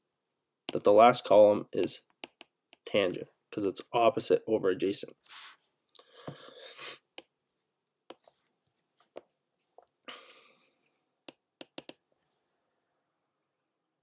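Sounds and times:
stylus tapping on glass screen: 11.2 - 12.0.

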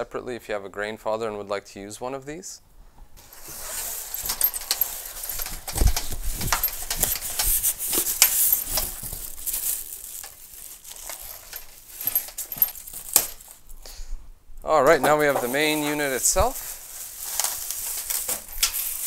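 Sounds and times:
plastic wrapping crinkling: 3.2 - 13.7, 14.9 - 19.0.

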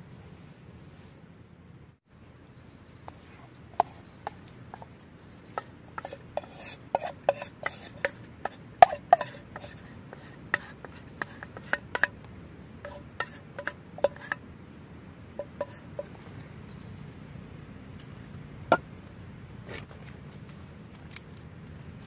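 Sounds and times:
spatula scraping inside pot: 3.1 - 14.4, 15.3 - 16.3.

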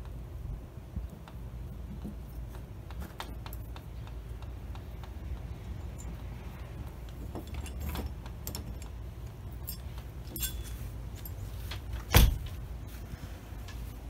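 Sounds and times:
metal latch clicks and rattles: 7.0 - 10.8.

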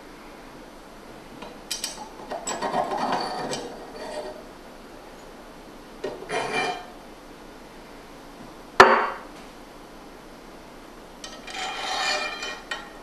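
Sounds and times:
metal clinking and scraping: 1.7 - 4.4, 6.1 - 6.9, 11.2 - 13.0.

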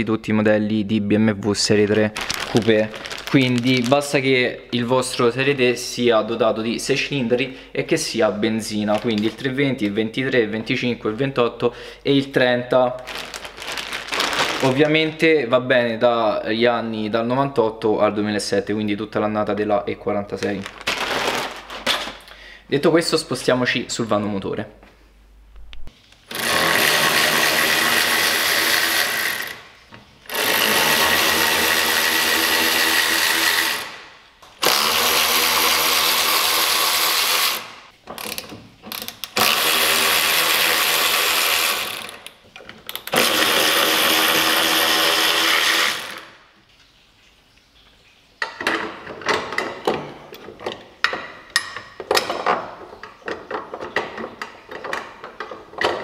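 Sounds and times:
cordless power tool spinning nuts: 26.3 - 29.7, 30.3 - 38.4, 39.0 - 42.3, 43.0 - 46.3.

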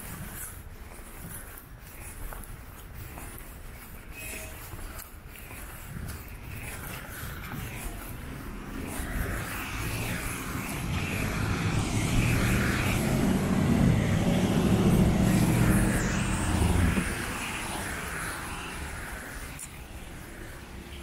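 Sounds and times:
heavy engine drone passing by: 7.0 - 21.0.

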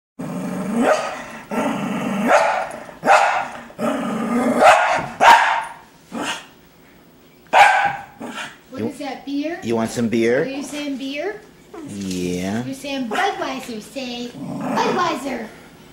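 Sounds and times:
dog barking and grumbling: 0.2 - 6.5, 7.5 - 8.6, 13.0 - 13.6, 14.3 - 15.4.

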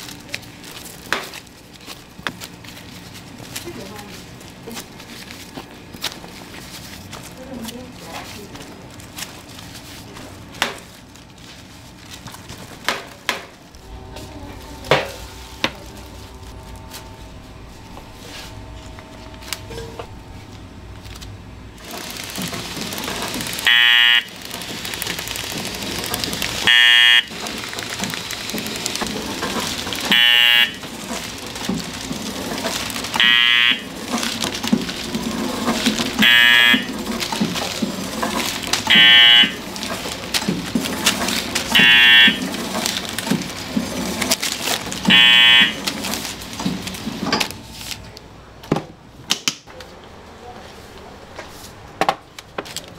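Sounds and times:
packaging machine running: 0.0 - 48.2
buzzer beeping: 23.6 - 24.4, 26.6 - 27.4, 30.1 - 30.8, 33.2 - 33.9, 36.2 - 36.9, 38.9 - 39.7, 41.7 - 42.4, 45.1 - 45.9.

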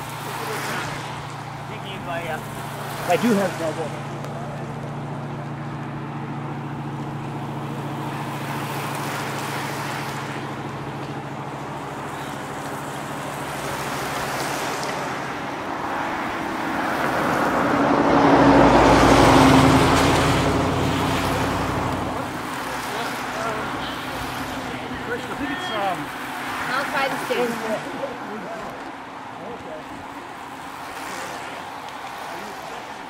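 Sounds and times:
tyres hissing on wet road: 0.0 - 4.1, 7.8 - 28.6
road noise: 0.0 - 33.0
truck engine passing: 0.0 - 33.0.

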